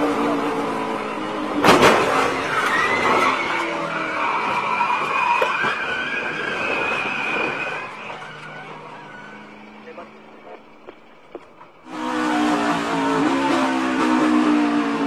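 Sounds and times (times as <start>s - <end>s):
tires squealing: 0.0s - 15.0s
car crash impact: 1.5s - 3.8s.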